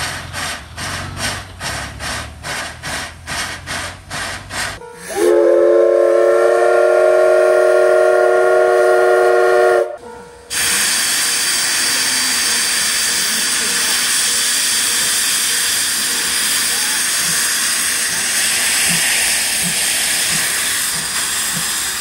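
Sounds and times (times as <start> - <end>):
steam hissing: 0.0 - 9.8, 10.5 - 22.0
steam locomotive chuffing: 0.0 - 22.0
steam whistle blast: 4.8 - 11.1.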